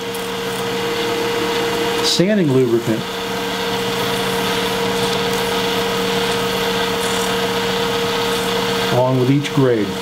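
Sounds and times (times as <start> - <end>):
wood lathe motor hum: 0.0 - 10.0
sandpaper hiss: 4.0 - 8.9.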